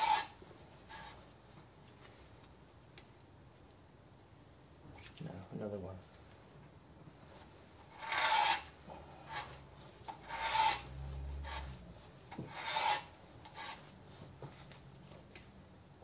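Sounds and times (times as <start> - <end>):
valve-seat cutter rasping on metal: 0.0 - 1.1, 8.0 - 13.9.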